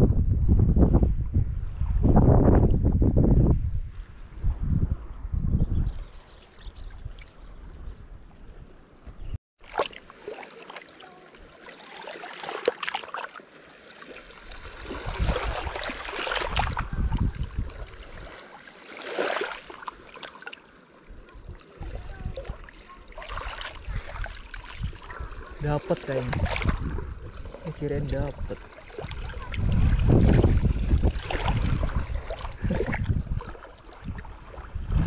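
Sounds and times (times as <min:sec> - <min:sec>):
running water: 0:09.6 - 0:35.0.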